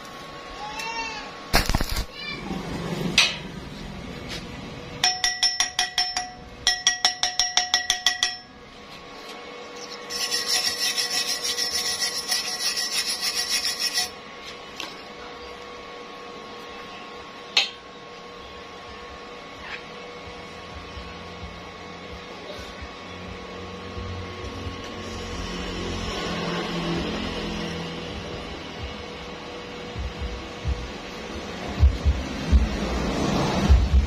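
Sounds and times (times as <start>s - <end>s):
wire brush scrubbing steel pipe: 9.2s - 14.2s.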